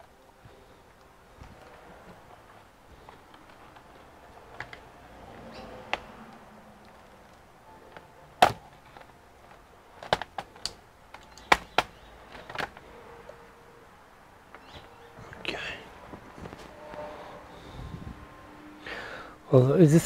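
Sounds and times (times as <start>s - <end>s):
plastic clips snapping loose: 10.0s - 12.8s.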